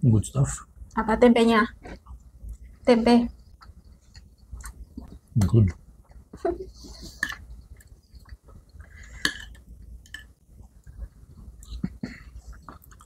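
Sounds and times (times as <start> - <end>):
spoons and dishes clinking: 9.1 - 10.4.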